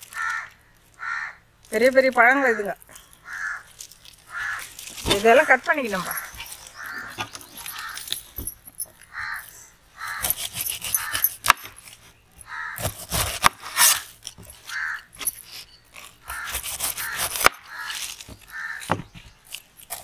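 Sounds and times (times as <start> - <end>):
crows cawing: 0.0 - 1.5, 3.0 - 8.1, 9.0 - 11.3, 12.4 - 13.0, 14.6 - 15.2, 16.2 - 19.0
knife cutting pineapple rind: 10.0 - 20.0.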